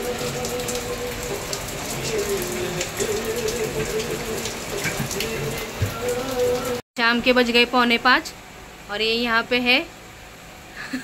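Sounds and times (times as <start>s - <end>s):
heavy rain on corrugated roof: 0.0s - 6.8s
water drip taps: 0.4s - 6.7s.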